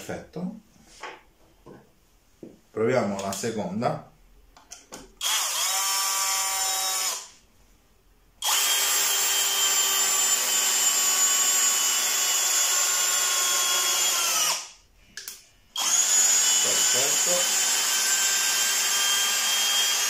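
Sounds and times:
drill motor whining: 0:05.2 - 0:07.3, 0:08.4 - 0:14.7, 0:15.8 - 0:20.0.

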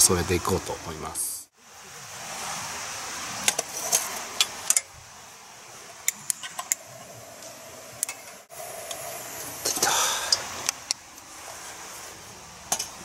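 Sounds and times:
steady hiss: 0:00.0 - 0:13.0
lantern metal clicks and rattles: 0:06.0 - 0:08.4.

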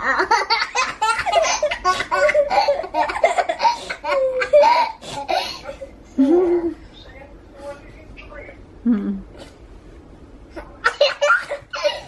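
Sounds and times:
girl and toddler giggling: 0:00.0 - 0:06.8, 0:10.8 - 0:12.0.

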